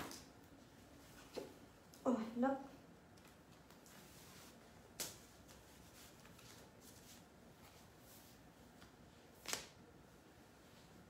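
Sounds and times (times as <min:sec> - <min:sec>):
faint rustling of items: 0:00.0 - 0:11.0.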